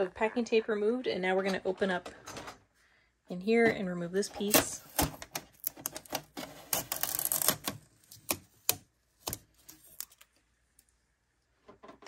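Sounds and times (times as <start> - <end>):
packing tape ripping: 4.5 - 10.2.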